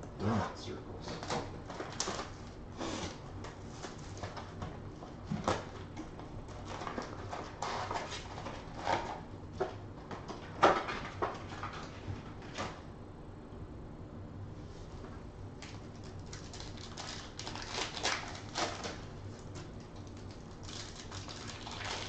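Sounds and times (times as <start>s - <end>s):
foil crinkling: 15.7s - 22.0s.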